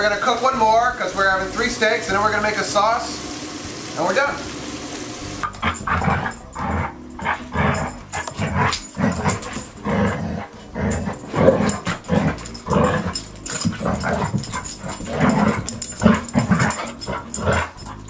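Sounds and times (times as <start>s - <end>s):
dogs play-growling: 5.4s - 18.0s.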